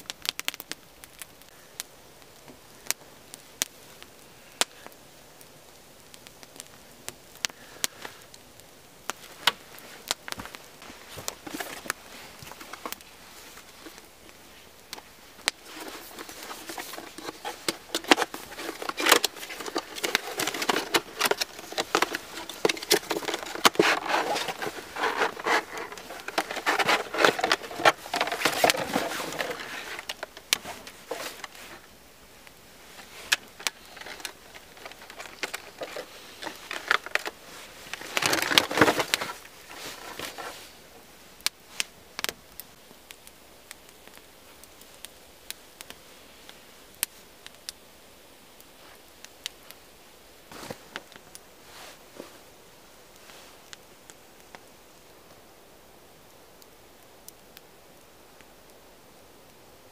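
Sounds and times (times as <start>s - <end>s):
plastic packaging crinkling: 10.4s - 14.4s, 15.0s - 31.9s, 32.9s - 40.6s.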